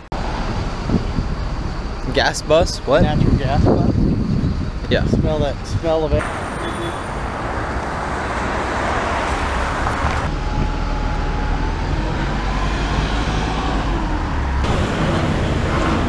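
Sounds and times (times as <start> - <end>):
bus engine running: 0.0 - 4.9, 5.8 - 16.0
faint engine whine: 0.0 - 16.0
traffic rumble: 0.0 - 16.0.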